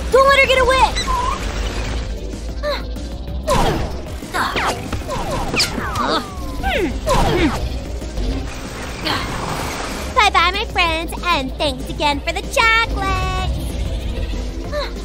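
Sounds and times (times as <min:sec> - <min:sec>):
cartoon action music: 0:00.0 - 0:15.0
low rumble: 0:10.7 - 0:15.0.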